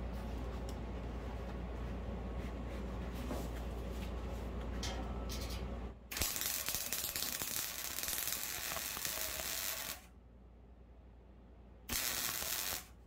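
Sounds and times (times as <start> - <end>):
welder hum: 6.1 - 10.1, 11.9 - 13.0
welding arc crackling and sizzling: 6.1 - 10.1, 11.9 - 13.0.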